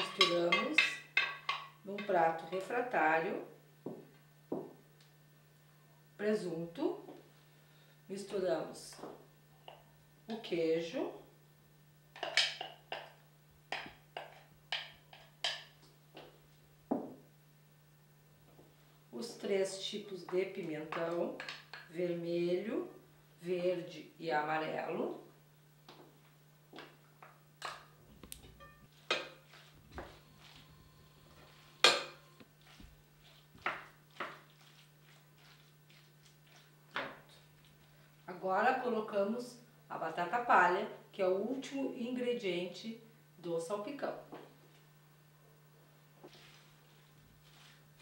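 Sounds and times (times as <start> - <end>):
wooden spoon tapping and scraping bowl: 0.0 - 2.2, 12.2 - 15.7, 33.3 - 37.1
wooden spoon clinking on glass: 28.6 - 28.9.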